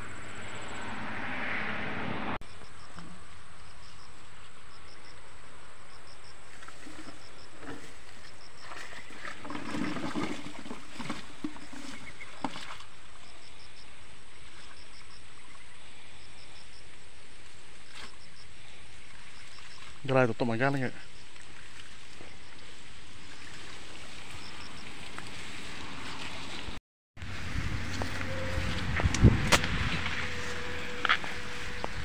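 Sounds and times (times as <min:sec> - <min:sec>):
loud rushing noise: 0:00.0 - 0:02.4.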